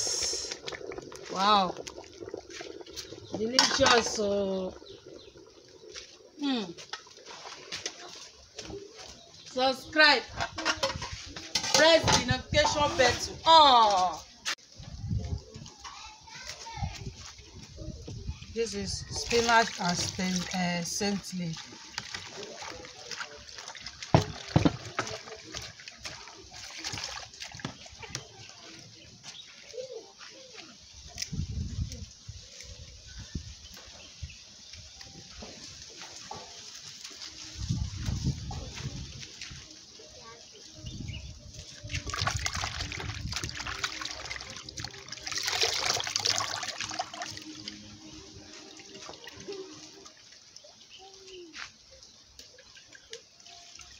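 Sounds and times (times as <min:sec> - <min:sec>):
hands washing leaves in water: 0:00.0 - 0:14.6, 0:15.2 - 0:53.9
water pouring and splashing: 0:00.0 - 0:53.9
hands swishing leaves in water: 0:41.5 - 0:50.2.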